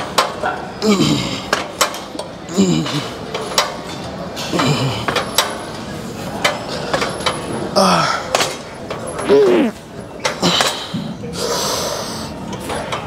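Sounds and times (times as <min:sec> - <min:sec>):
person grunting: 0:09.2 - 0:09.8.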